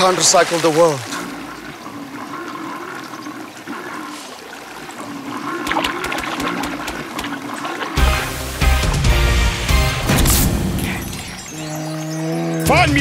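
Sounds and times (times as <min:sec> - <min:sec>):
rushing water: 0:00.0 - 0:13.0
short clicks or splashes: 0:05.6 - 0:07.8.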